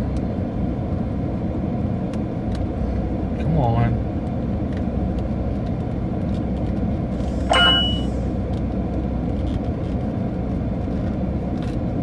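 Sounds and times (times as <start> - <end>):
low rumble inside car: 0.0 - 12.0
metallic clang ringing: 7.5 - 8.1.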